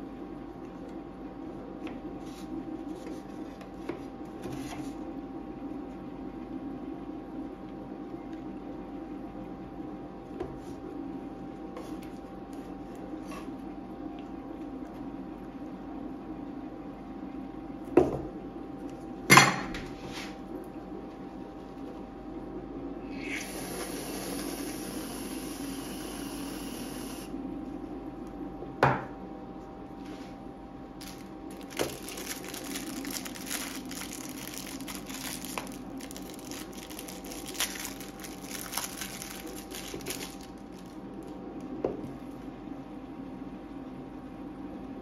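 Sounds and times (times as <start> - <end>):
faint steady hum: 0.0 - 45.0
foil wrapper crackling: 31.0 - 41.7.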